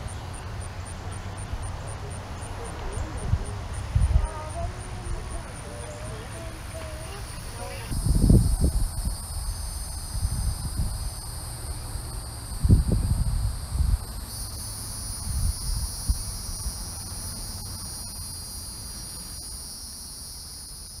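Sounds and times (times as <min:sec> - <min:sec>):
insects trilling: 0:00.0 - 0:21.0
wind buffeting microphone: 0:02.6 - 0:14.4, 0:15.1 - 0:17.8.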